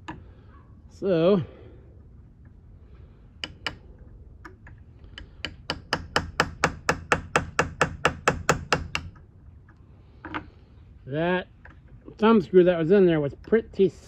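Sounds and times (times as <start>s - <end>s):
hammer tapping metal punch: 3.4s - 3.8s, 4.4s - 9.2s.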